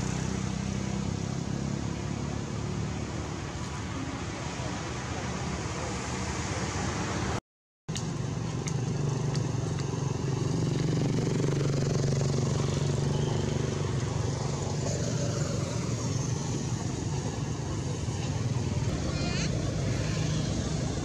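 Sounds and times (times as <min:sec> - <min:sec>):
outdoor noise: 0:00.0 - 0:21.0
engine humming: 0:07.9 - 0:21.0.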